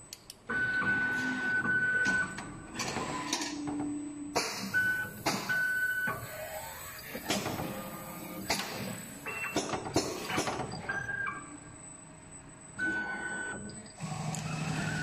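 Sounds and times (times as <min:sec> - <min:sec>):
machine mechanical clacks: 0:02.0 - 0:11.1.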